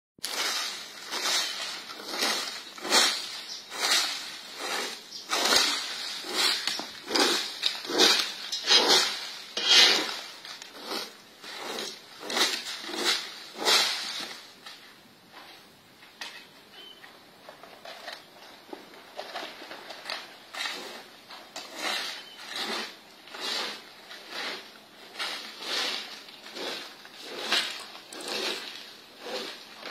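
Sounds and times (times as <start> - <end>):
broom sweeping dry leaves: 0.2 - 14.6, 20.6 - 21.1, 21.7 - 29.9.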